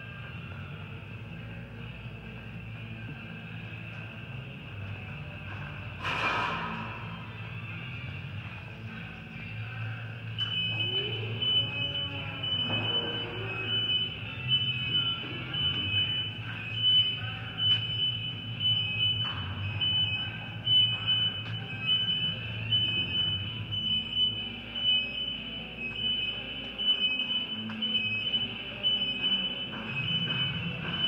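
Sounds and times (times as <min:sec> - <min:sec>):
high-pitched electronic alarm beeping: 0:09.4 - 0:31.0.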